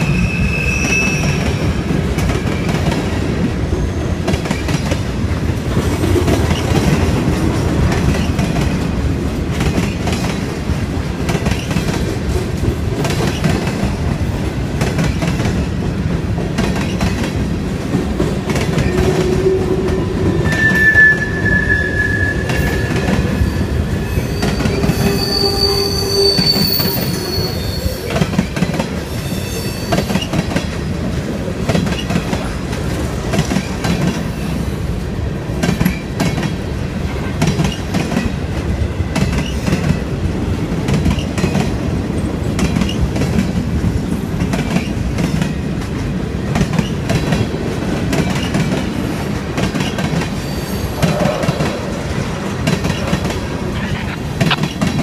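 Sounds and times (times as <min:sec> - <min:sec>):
train wheel squeal: 0:00.0 - 0:02.9, 0:03.6 - 0:04.8, 0:18.6 - 0:30.5, 0:49.8 - 0:52.0
freight train rolling past: 0:00.0 - 0:55.0.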